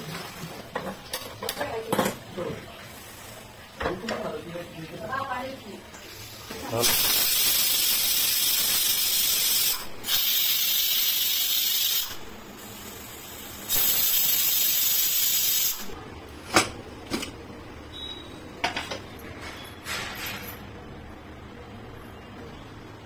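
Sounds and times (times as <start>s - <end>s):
pressure cooker steam hissing: 6.1s - 16.0s.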